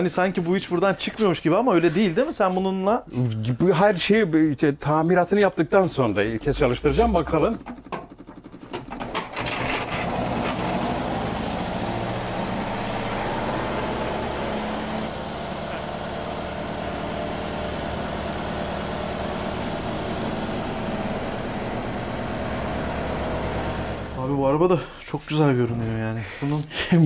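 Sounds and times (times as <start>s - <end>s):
car engine cranked by hand: 6.4s - 24.2s
car engine idling: 10.0s - 24.4s.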